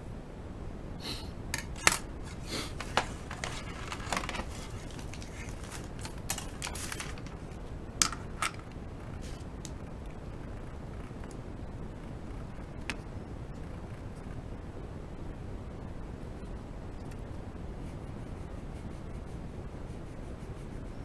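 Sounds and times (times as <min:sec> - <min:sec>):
drawing tools clicking: 0:01.6 - 0:08.8
paper rustling: 0:01.6 - 0:09.5
hand brushing over paper: 0:02.2 - 0:07.6, 0:09.2 - 0:09.5.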